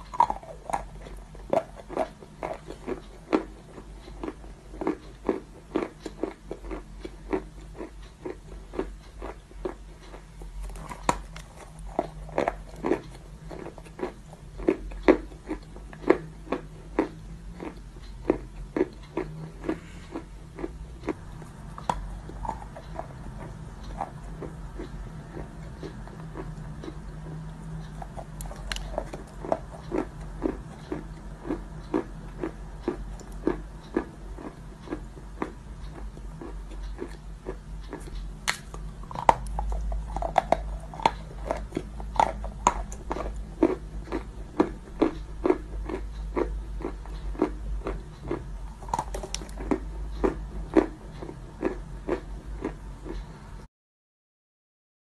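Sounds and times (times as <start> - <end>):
crunchy chewing: 0.0 - 53.4.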